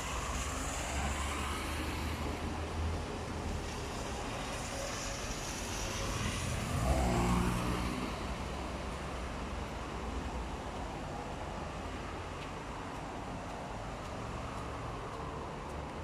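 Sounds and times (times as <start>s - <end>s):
tyres hissing on wet road: 0.0s - 15.3s
passing vehicle engine: 6.0s - 8.6s.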